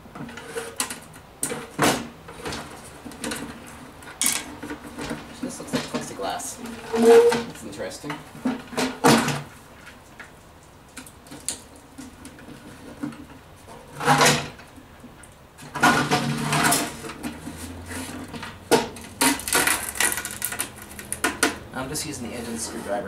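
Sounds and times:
plastic cover scraping and creaking: 4.5s - 7.7s, 15.6s - 23.0s.

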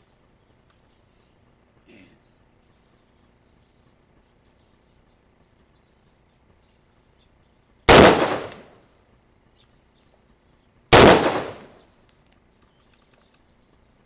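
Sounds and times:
rifle shots: 7.9s - 8.8s, 10.9s - 11.8s.

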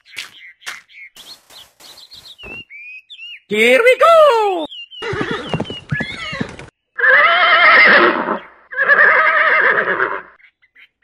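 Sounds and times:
horse whinnying: 5.0s - 10.3s.

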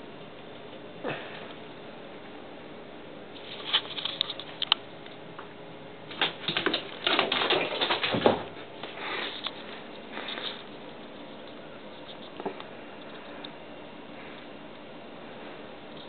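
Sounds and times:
cat claws clicking on tile floor: 6.1s - 8.4s.

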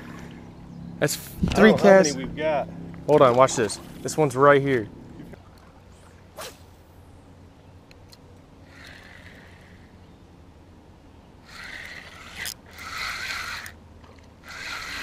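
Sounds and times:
brief swish: 6.4s - 6.8s
fishing reel gears whirring: 8.6s - 10.2s, 11.4s - 15.0s.

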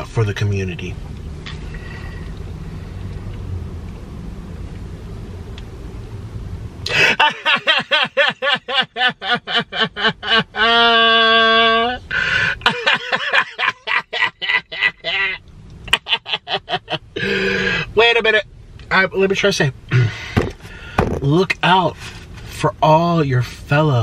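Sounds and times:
low steady rumble: 0.0s - 24.0s
man cackling: 6.9s - 17.9s.

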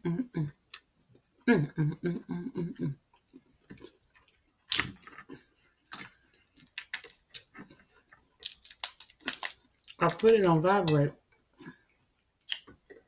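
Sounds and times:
person murmuring: 0.0s - 0.5s, 1.5s - 3.0s
crab shells cracking: 4.6s - 10.5s.

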